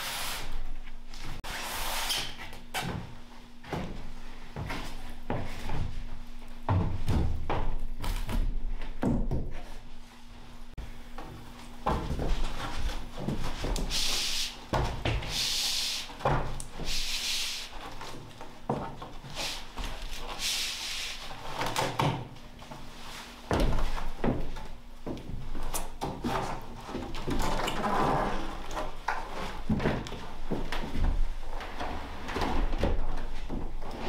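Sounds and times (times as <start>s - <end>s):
short hissing sounds: 13.8s - 14.6s, 15.3s - 16.2s, 16.8s - 17.7s, 20.4s - 21.2s.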